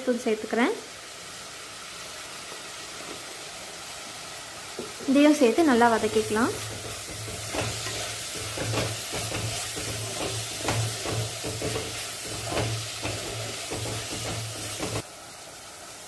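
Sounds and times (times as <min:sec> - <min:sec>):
vegetables sizzling in oil: 0:00.0 - 0:16.0
spatula scraping a pot: 0:06.2 - 0:15.0.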